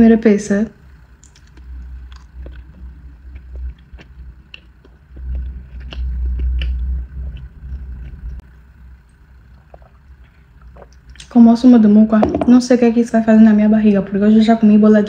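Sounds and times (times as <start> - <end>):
person chewing food: 1.2 - 8.5.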